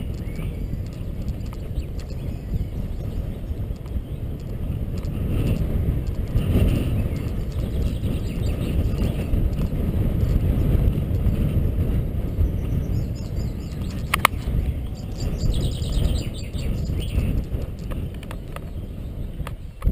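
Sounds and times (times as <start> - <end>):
bicycle tyres rumbling on bridge: 0.0 - 19.9
wind on microphone: 0.0 - 19.9.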